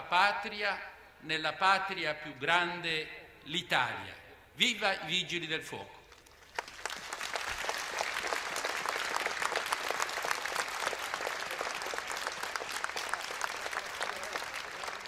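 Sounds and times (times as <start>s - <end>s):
large crowd applauding: 6.2s - 15.0s.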